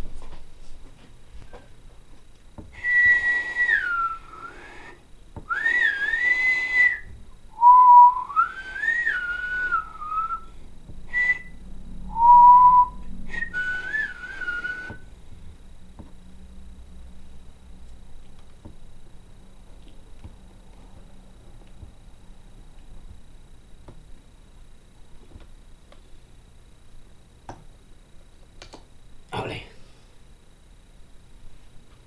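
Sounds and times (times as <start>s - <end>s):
person whistling: 2.7s - 10.5s, 11.1s - 15.1s.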